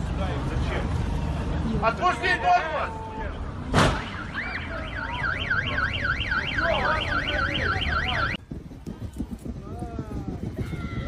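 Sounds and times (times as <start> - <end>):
car alarm siren: 4.0 - 8.4.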